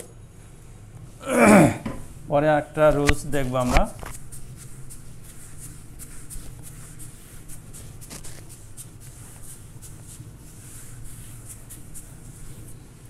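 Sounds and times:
eraser rubbing on whiteboard: 3.4 - 13.0.

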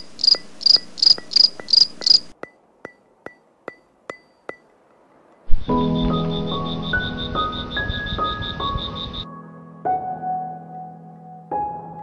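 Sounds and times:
cricket chirping: 0.0 - 4.7, 5.4 - 9.3
sharp ticks: 0.0 - 5.5.

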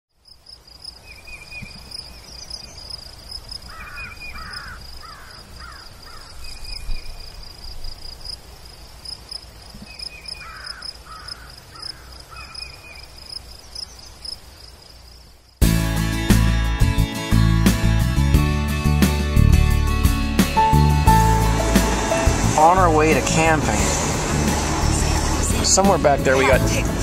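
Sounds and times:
pulsing high insect chirp: 0.2 - 15.6
bird harsh calls: 3.6 - 7.2, 9.8 - 13.1.

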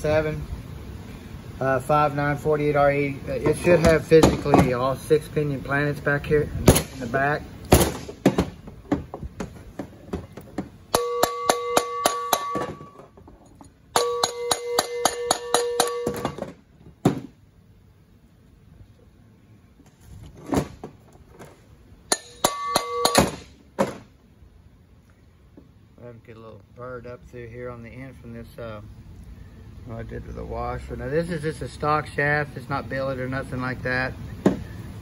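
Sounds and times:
mallet tapping steel shaft: 10.9 - 13.0, 14.0 - 16.4, 22.1 - 23.4.

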